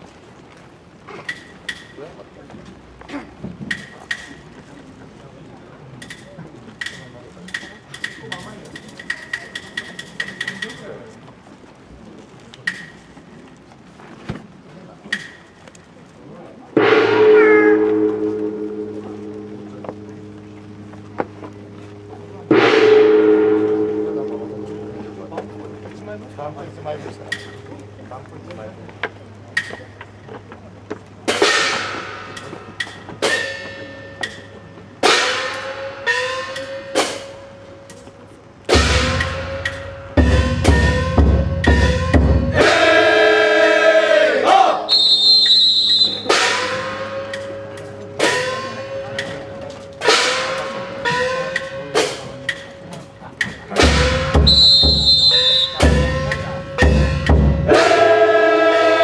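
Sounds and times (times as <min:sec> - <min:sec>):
loud ringing percussion strikes: 0:16.8 - 0:21.8, 0:22.4 - 0:27.7, 0:31.4 - 0:37.8, 0:53.8 - 0:58.1
bass drum beats: 0:38.7 - 0:42.8, 0:53.7 - 0:57.9
people shouting: 0:42.6 - 0:45.0, 0:57.7 - 0:59.0
high whistle blast: 0:44.9 - 0:46.8, 0:54.4 - 0:56.0.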